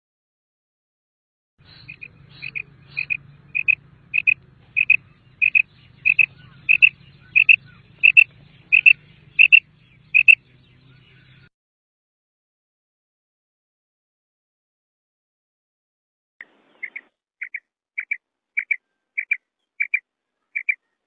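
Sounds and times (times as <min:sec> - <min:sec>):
faint low hum: 0:01.6 - 0:11.5
quail two-note call: 0:01.7 - 0:09.6.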